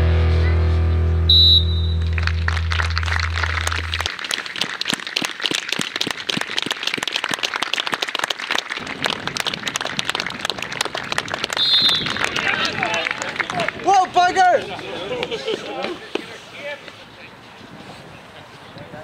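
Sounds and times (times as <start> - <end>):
crowd clapping: 1.6 - 16.3.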